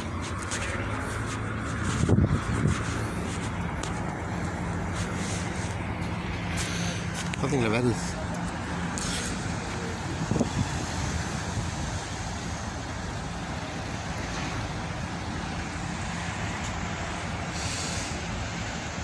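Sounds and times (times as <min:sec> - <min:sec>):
wind on microphone: 0:00.0 - 0:06.0, 0:10.0 - 0:12.0
ferry engines rumbling: 0:00.0 - 0:19.0.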